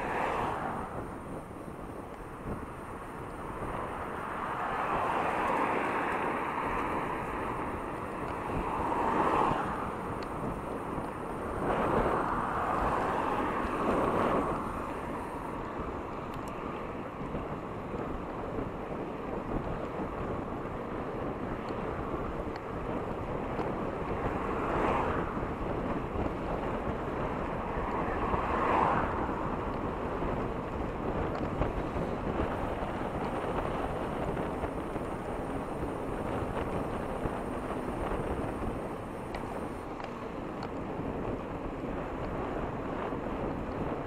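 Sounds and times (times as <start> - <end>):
road noise: 0.0 - 44.0
wind rushing over microphone: 0.0 - 44.0.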